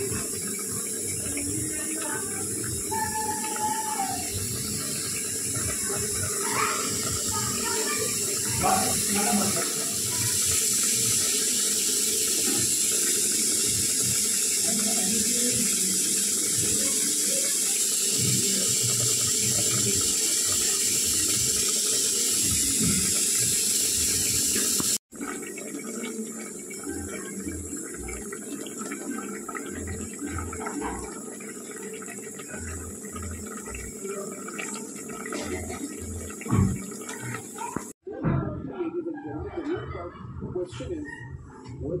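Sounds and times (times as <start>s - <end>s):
curry simmering in a pot: 0.0s - 38.0s.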